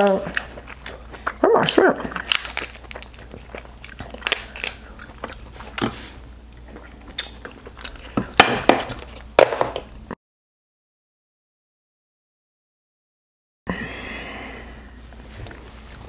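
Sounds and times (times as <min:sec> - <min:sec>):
biting chewing and slurping: 0:00.1 - 0:09.4, 0:15.3 - 0:16.0
crab shells cracking: 0:00.4 - 0:06.0, 0:07.0 - 0:09.4.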